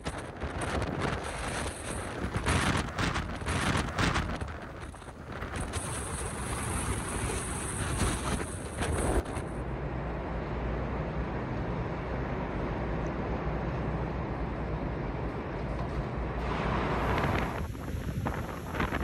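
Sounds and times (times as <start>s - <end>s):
wind buffeting microphone: 0.0s - 9.5s, 11.6s - 19.0s
rain roaring: 16.2s - 19.0s.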